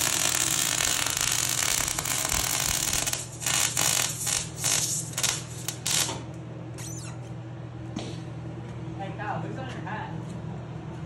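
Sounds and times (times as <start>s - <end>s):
welding arc crackling: 0.0s - 6.3s.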